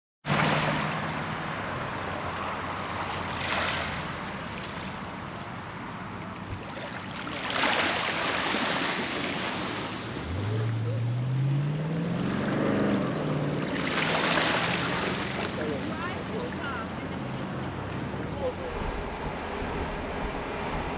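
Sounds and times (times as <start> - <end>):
small waves washing on shore: 0.3 - 11.2, 12.8 - 19.9
engine rising in pitch: 10.0 - 20.9.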